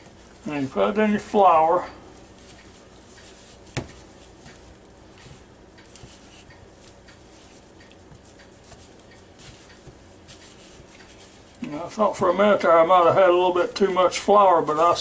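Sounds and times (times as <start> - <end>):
hands rustling chicken in flour: 0.0 - 11.9
faint steady hum: 0.0 - 15.0.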